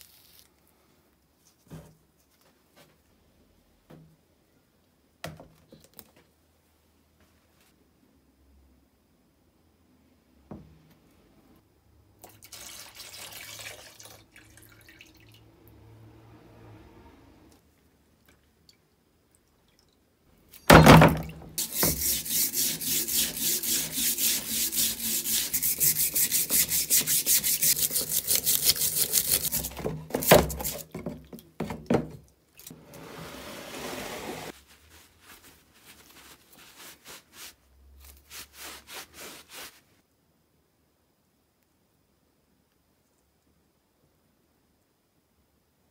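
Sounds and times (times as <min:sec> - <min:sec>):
brush scrubbing metal wrench: 0:21.6 - 0:30.8.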